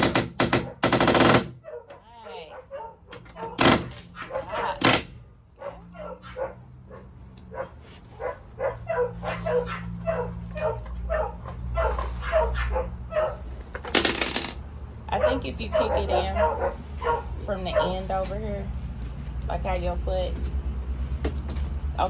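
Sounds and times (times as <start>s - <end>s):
dog barking and yipping: 0.6s - 0.9s, 1.6s - 4.9s, 5.6s - 13.6s, 15.1s - 18.3s.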